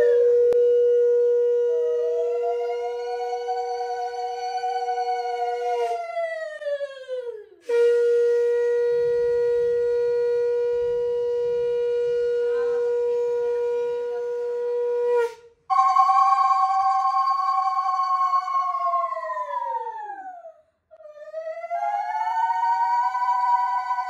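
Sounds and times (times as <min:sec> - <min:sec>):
conch shell blowing: 0:00.0 - 0:04.8, 0:07.6 - 0:18.7.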